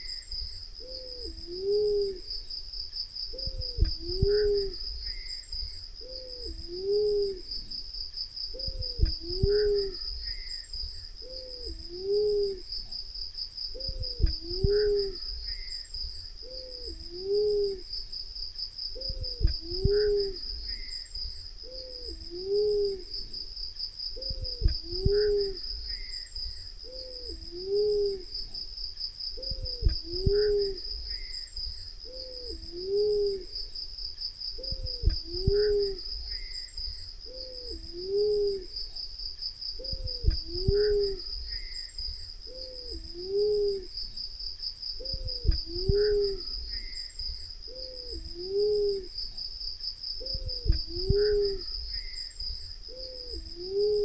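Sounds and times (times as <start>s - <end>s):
dove two-note hooting coo: 0.0s - 2.4s, 3.3s - 5.4s, 6.0s - 7.7s, 8.5s - 10.6s, 11.2s - 12.7s, 13.7s - 15.7s, 16.4s - 17.9s, 18.9s - 20.9s, 21.6s - 23.4s, 24.2s - 26.1s, 26.8s - 28.6s, 29.4s - 31.3s, 32.0s - 33.7s, 34.6s - 36.6s, 37.2s - 38.8s, 39.8s - 41.7s, 42.4s - 44.0s, 45.0s - 47.0s, 47.7s - 49.2s, 50.2s - 52.1s, 52.9s - 54.0s
high insect buzz: 0.0s - 54.0s.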